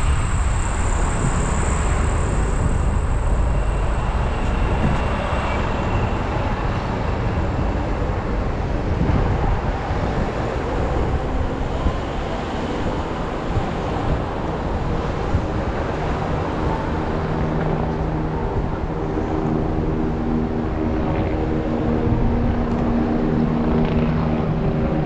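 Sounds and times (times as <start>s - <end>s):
city street traffic: 0.0s - 25.0s
wind rumble on microphone: 0.0s - 25.0s.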